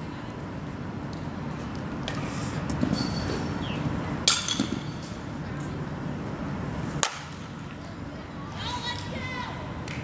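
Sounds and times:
metal bat cracking ball: 0:07.0 - 0:07.4.

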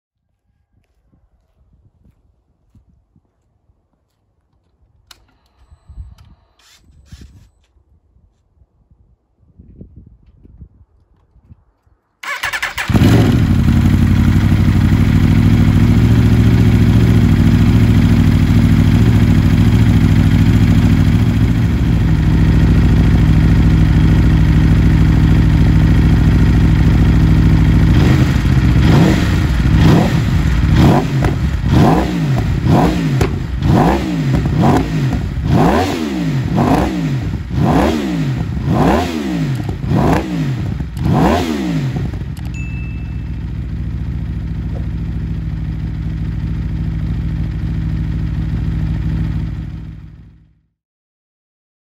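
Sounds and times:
motorcycle engine idling: 0:12.2 - 0:38.6, 0:39.3 - 0:50.7
engine revving blips: 0:27.7 - 0:45.0.

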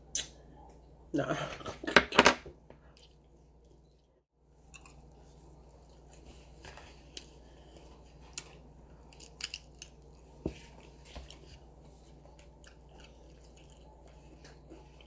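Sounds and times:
low steady hum: 0:00.0 - 0:15.0
person chewing crunchy food: 0:04.6 - 0:15.0.

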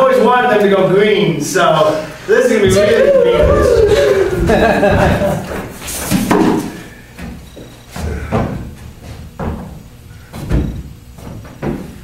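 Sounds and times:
footsteps on a stage floor: 0:02.6 - 0:06.4.

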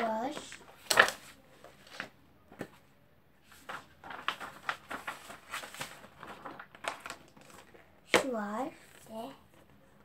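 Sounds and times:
paper crackling and rustling: 0:00.3 - 0:02.8, 0:03.4 - 0:07.9.

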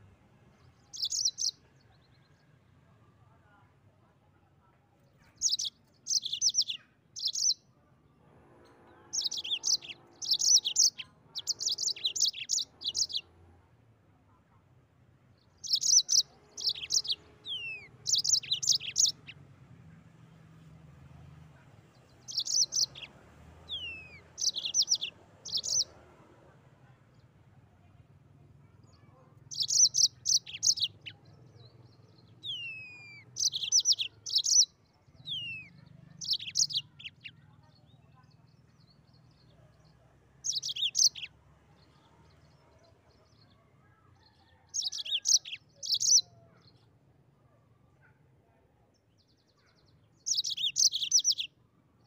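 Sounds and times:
canary trilling: 0:00.9 - 0:01.6, 0:05.4 - 0:07.6, 0:09.0 - 0:13.3, 0:15.6 - 0:19.4, 0:22.1 - 0:26.0, 0:29.4 - 0:31.8, 0:32.4 - 0:37.4, 0:40.4 - 0:41.3, 0:44.5 - 0:46.5, 0:50.2 - 0:51.5.

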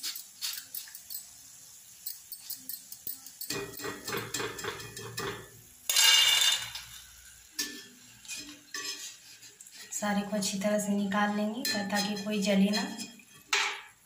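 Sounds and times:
metal spoon scraping pan: 0:02.0 - 0:10.0, 0:11.4 - 0:13.9.

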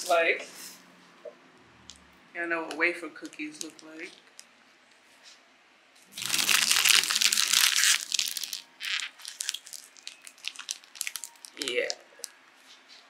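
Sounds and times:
foil snack bag crinkling: 0:03.5 - 0:04.3, 0:06.1 - 0:12.3.

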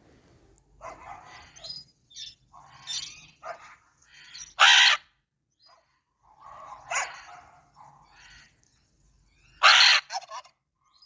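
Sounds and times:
macaws squawking: 0:04.1 - 0:05.0, 0:09.6 - 0:10.5.

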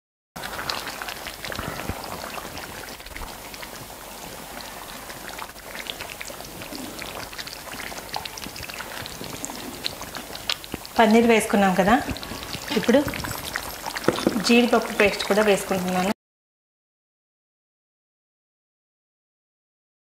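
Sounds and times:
gravy bubbling and sizzling: 0:00.4 - 0:16.2
wooden spoon stirring: 0:05.0 - 0:15.6.

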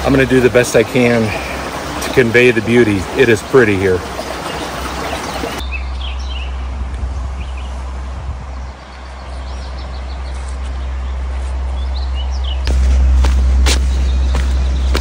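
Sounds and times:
bird chirps: 0:04.4 - 0:06.7, 0:08.6 - 0:12.7, 0:13.8 - 0:15.0
wind noise on microphone: 0:05.6 - 0:09.0.

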